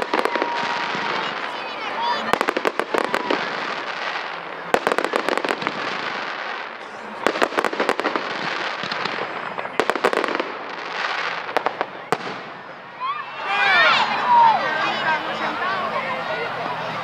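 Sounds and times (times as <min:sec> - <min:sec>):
fireworks bursting: 0:00.0 - 0:13.4.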